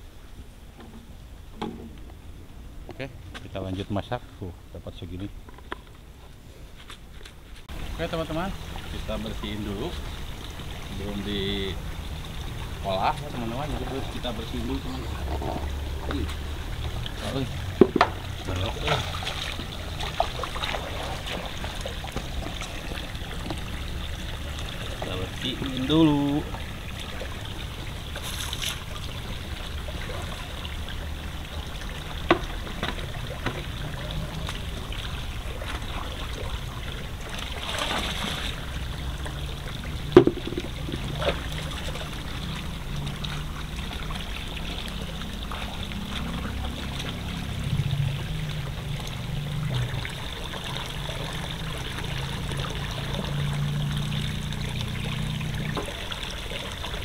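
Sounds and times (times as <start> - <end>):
water gushing into pond: 7.7 - 57.0
sharp knocks: 17.8 - 18.2, 40.2 - 41.3.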